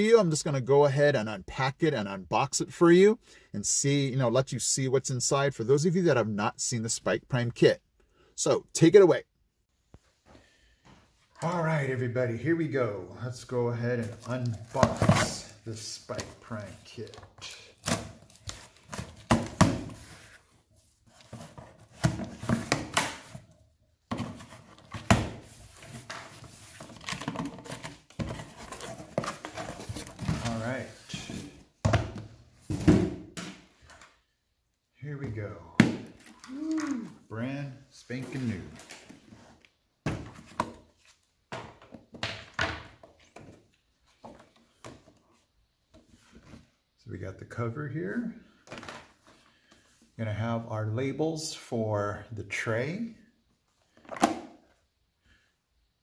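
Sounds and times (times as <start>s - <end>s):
card sheets rustling: 38.1s - 39.6s.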